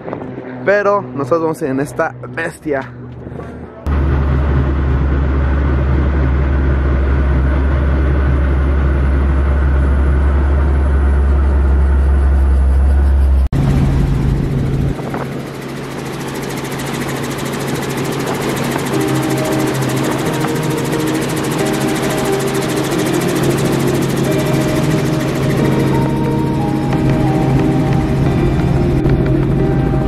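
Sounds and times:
helicopter engine and rotor: 0.0s - 30.0s
wind in cabin: 3.1s - 16.1s.

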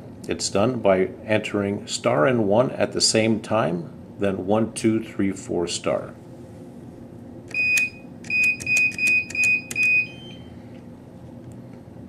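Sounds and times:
keypad beeping: 7.5s - 10.5s.

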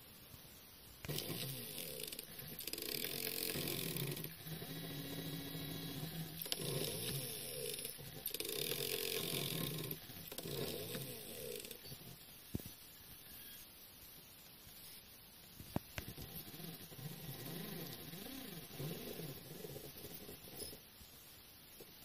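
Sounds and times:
stepper motors whining: 1.0s - 12.2s, 16.0s - 20.8s.

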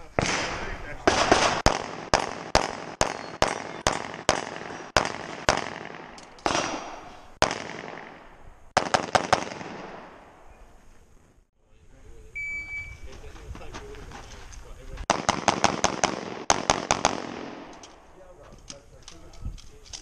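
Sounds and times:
pistol shots echoing: 0.2s - 10.4s, 15.1s - 18.0s.

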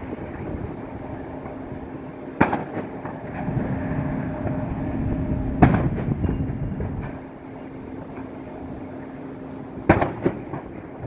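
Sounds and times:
low rumble with hum: 0.0s - 11.0s.

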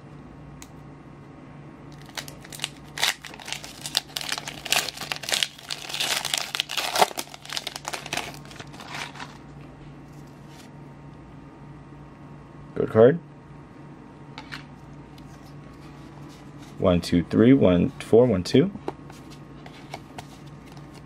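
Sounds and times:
foil wrapper tearing and crinkling: 2.0s - 9.4s.

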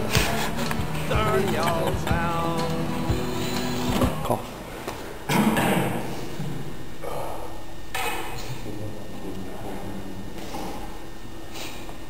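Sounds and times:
song with gliding melody: 0.0s - 4.2s.

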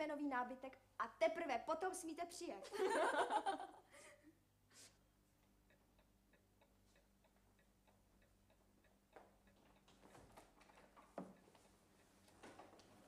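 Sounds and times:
clock ticking: 5.4s - 13.0s.

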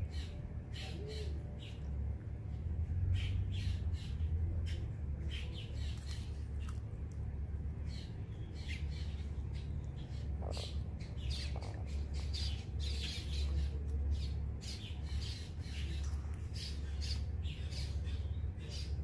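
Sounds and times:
steady low hum: 0.0s - 19.0s
tortoise crunching salad: 4.7s - 19.0s.

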